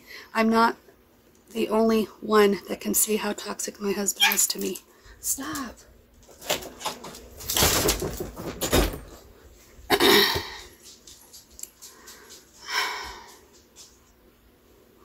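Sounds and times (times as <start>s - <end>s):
rustling handling noise: 5.4s - 9.9s.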